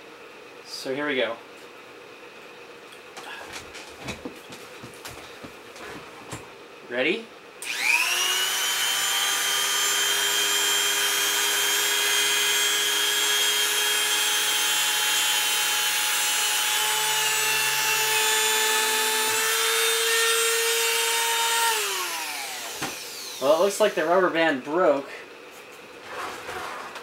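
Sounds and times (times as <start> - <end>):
rotary tool high whine: 7.6 - 25.0.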